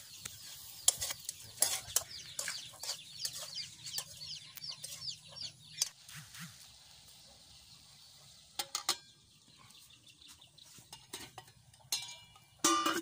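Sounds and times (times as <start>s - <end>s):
chickens calling: 0.0s - 8.4s
metal spoon scraping metal pan: 0.7s - 6.0s.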